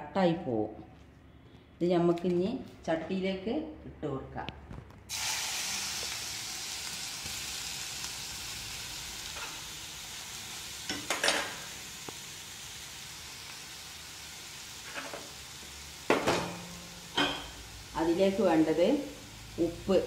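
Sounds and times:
spices sizzling in hot oil: 0:05.1 - 0:20.0.

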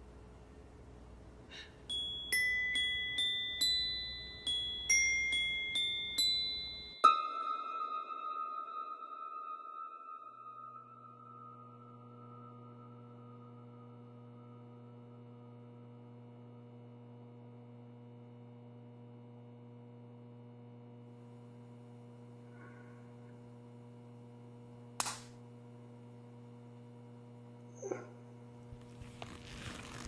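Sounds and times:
steady low hum: 0:10.7 - 0:30.0.

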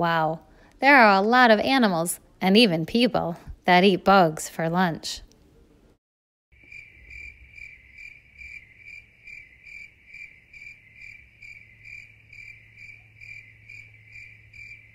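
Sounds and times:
cricket chirping: 0:06.6 - 0:14.9.

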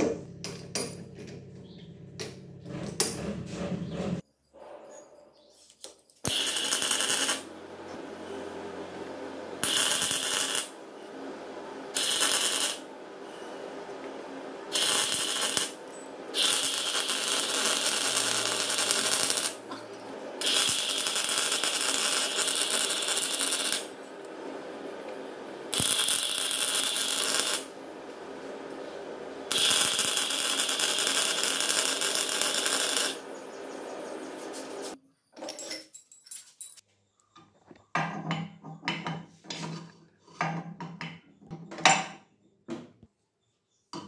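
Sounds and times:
welding arc crackling: 0:06.2 - 0:07.6, 0:09.2 - 0:10.8, 0:11.8 - 0:13.0, 0:14.7 - 0:24.0, 0:25.6 - 0:27.9, 0:29.4 - 0:33.3, 0:34.1 - 0:35.0
steady low hum: 0:06.4 - 0:35.0.

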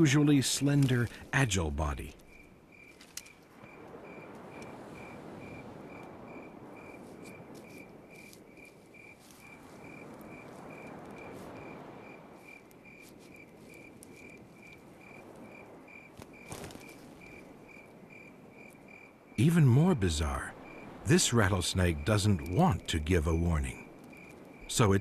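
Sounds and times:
cricket chirping: 0:00.0 - 0:25.0
soft wavering hiss: 0:00.0 - 0:25.0
faint ticks: 0:02.2 - 0:04.8.

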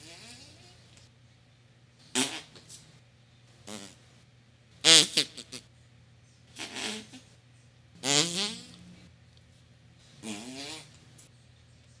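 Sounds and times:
farts: 0:02.1 - 0:02.6, 0:03.7 - 0:04.0, 0:06.6 - 0:07.2, 0:08.0 - 0:08.8, 0:10.2 - 0:10.9.

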